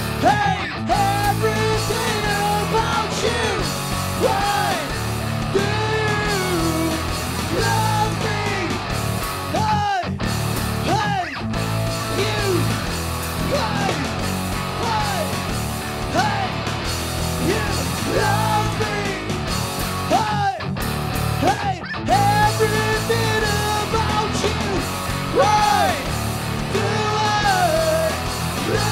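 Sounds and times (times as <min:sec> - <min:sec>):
electric bass: 0:00.0 - 0:28.9
electric guitar: 0:00.0 - 0:28.9
man singing: 0:00.2 - 0:08.9, 0:09.5 - 0:10.1, 0:10.8 - 0:11.4, 0:12.0 - 0:15.4, 0:16.1 - 0:16.6, 0:17.4 - 0:19.5, 0:20.1 - 0:20.7, 0:21.4 - 0:28.9
electronic drum kit: 0:01.0 - 0:10.9, 0:11.5 - 0:20.2, 0:22.2 - 0:28.9.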